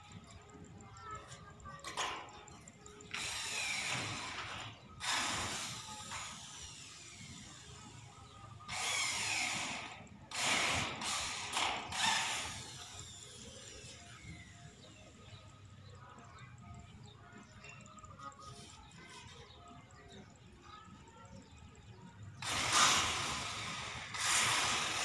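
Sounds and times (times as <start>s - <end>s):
rasping ratchet-like metal sounds: 0.0s - 8.0s, 8.6s - 15.2s, 17.6s - 19.9s, 22.4s - 25.0s.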